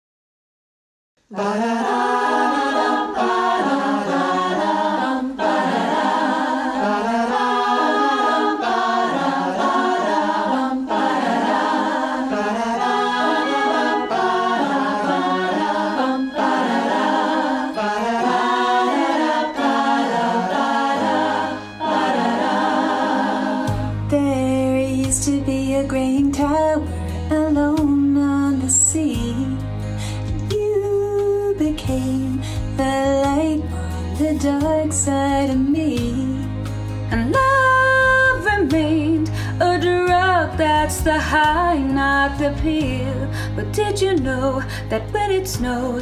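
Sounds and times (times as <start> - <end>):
choir singing a cappella: 1.3 - 26.9.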